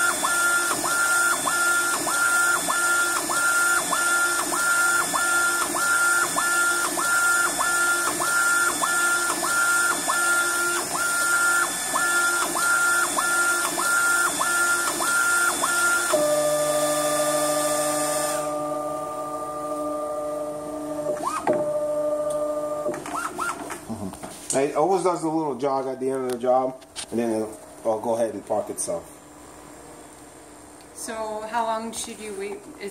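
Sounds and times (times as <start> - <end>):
printer hiss: 0.0 - 18.6
printer carriage motor whine: 0.0 - 24.0
printer hum: 0.0 - 25.5.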